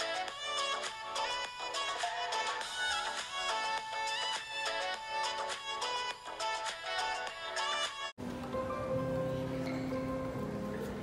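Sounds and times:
shopping mall background noise: 6.9 - 11.0
piano playing slow chords: 8.2 - 11.0.

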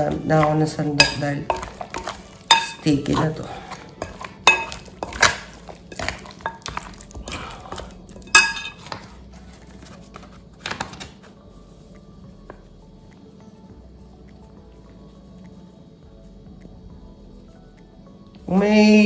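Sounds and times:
metal spoon clinking on glass bowl: 0.4 - 3.2, 4.0 - 6.8, 8.2 - 9.0.

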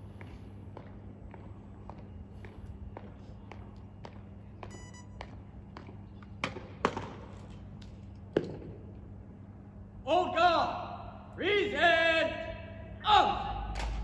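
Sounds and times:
low steady hum: 0.0 - 14.0
short beep: 4.7 - 5.2.

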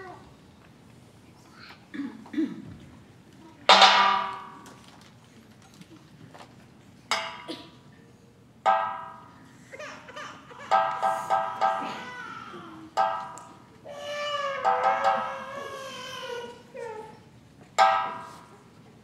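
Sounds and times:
struck ringing notes: 8.7 - 9.5, 10.7 - 12.2, 13.0 - 13.7, 17.8 - 18.6.

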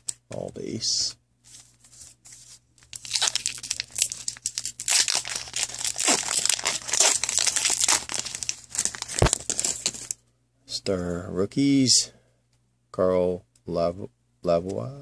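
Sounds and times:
foil wrapper crinkling: 2.8 - 10.2.

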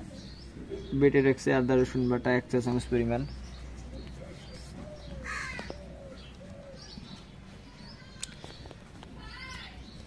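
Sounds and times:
low cooing calls: 0.0 - 1.2, 3.6 - 7.4
crow cawing: 5.2 - 5.8.

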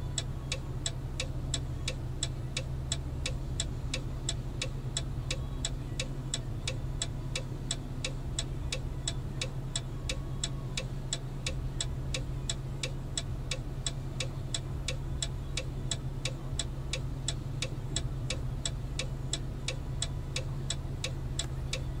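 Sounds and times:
rhythmic ticking: 0.0 - 22.0
steady low hum: 0.0 - 22.0.

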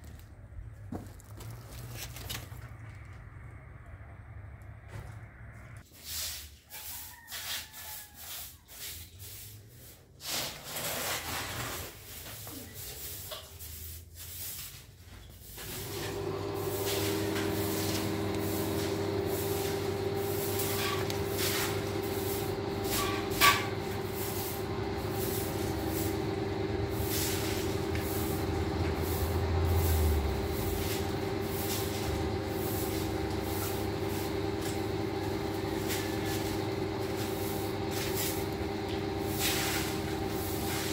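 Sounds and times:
broom sweeping a tiled floor: 5.8 - 40.9
steady mechanical hum: 15.2 - 40.9.

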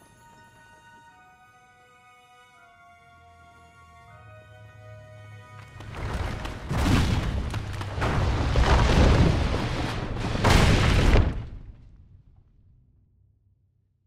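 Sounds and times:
deep rumbling crashes: 5.9 - 12.6.

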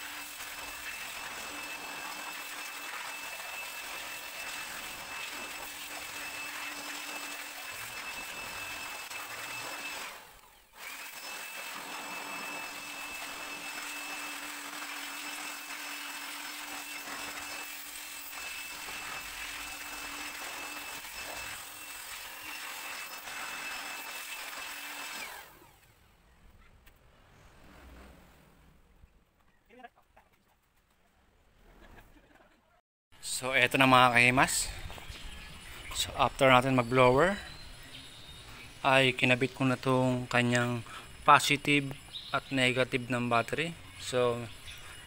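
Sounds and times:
electric air blower whining: 0.0 - 26.0.

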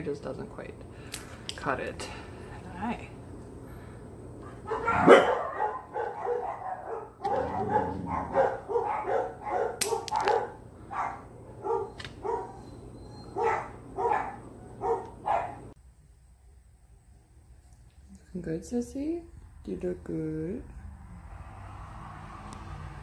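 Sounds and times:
dog barking: 4.6 - 12.6, 13.3 - 15.7.

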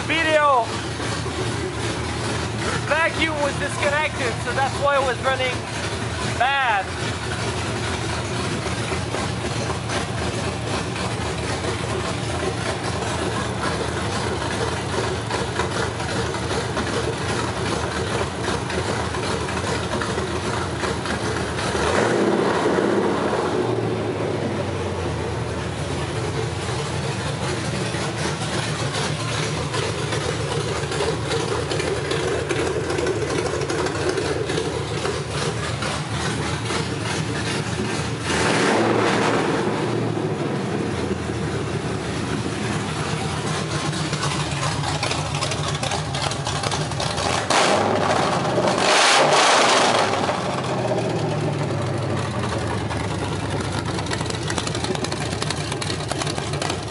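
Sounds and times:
engine idling: 0.0 - 56.9.

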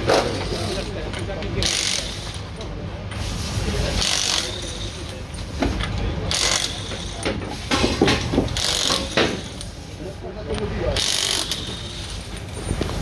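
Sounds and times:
ratchet wrench clicking: 1.6 - 2.4, 4.0 - 4.8, 6.3 - 7.2, 8.6 - 9.7, 11.0 - 12.5.

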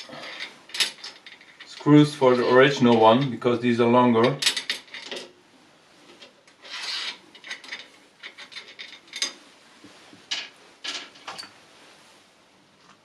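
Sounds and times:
screws and wrench clinking on metal: 0.0 - 3.4, 6.2 - 9.4.

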